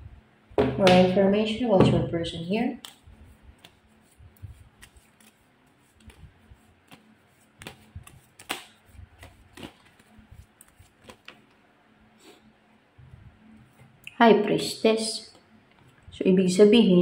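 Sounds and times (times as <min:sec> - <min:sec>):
cards being shuffled: 0:02.8 - 0:11.6.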